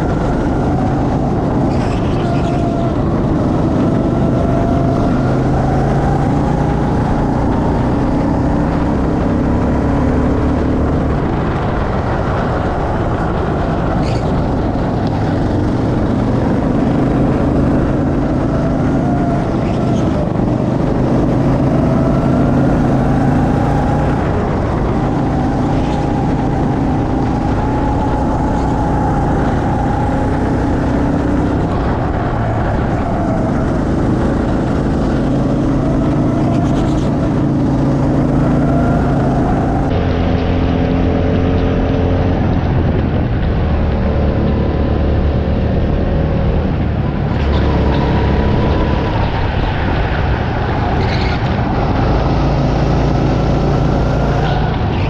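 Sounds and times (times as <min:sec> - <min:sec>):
go-kart engine revving: 0:00.0 - 0:55.0.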